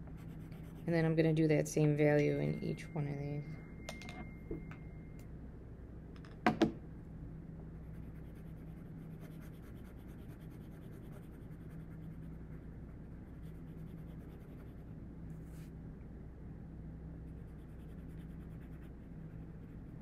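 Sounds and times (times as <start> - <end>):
pencil scratching on paper: 7.9 - 14.9.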